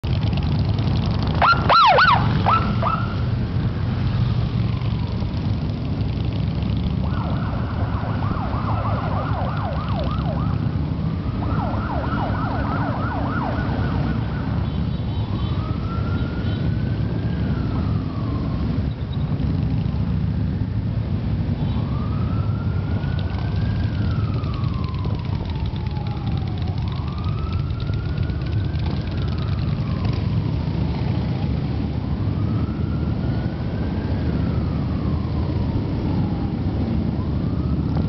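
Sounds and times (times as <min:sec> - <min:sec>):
motorcycle engines rumbling: 0:00.0 - 0:38.0
electronic siren whooping and wailing: 0:01.3 - 0:03.5, 0:06.9 - 0:14.6, 0:21.7 - 0:31.6, 0:32.2 - 0:38.0.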